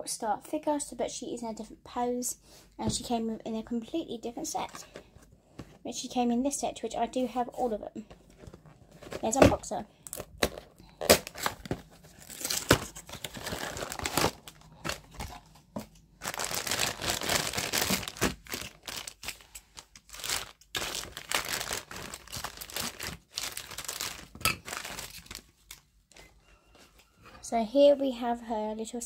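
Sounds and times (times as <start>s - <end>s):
plastic bag crinkling: 10.0s - 25.9s.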